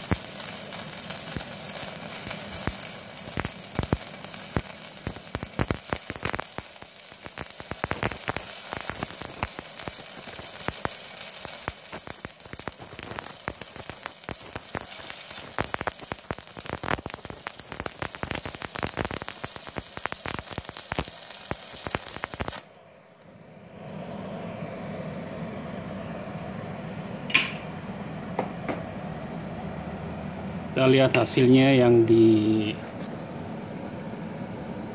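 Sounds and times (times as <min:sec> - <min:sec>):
welding arc crackling: 0:00.0 - 0:22.7
low hum: 0:22.7 - 0:30.8.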